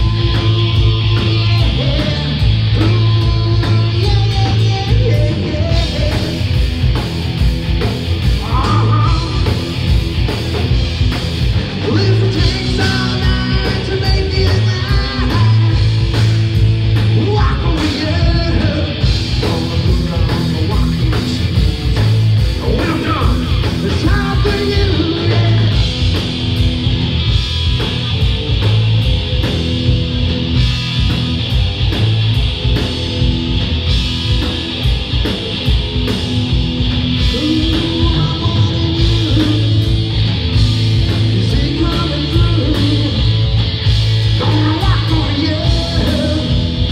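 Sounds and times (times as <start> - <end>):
lead vocal singing: 0.0 - 6.6, 11.8 - 16.0, 17.1 - 26.0, 37.2 - 40.2, 41.1 - 43.4, 44.4 - 46.9
distorted electric guitars: 0.0 - 46.9
drum kit: 0.0 - 46.9.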